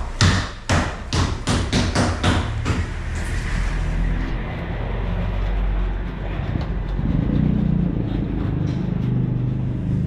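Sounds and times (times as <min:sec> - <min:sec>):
low motor drone: 0:03.4 - 0:10.0.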